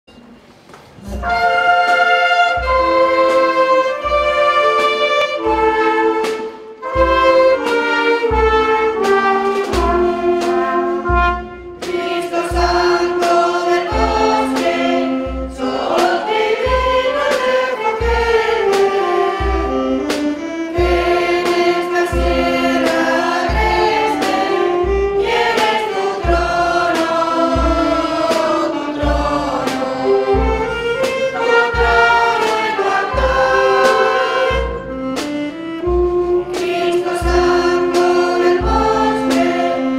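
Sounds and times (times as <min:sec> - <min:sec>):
clarinets and flutes: 0:01.0 - 0:39.9
steady drum beat: 0:01.1 - 0:39.9
women's choir singing a hymn: 0:07.2 - 0:19.6, 0:20.7 - 0:35.0, 0:36.5 - 0:39.9.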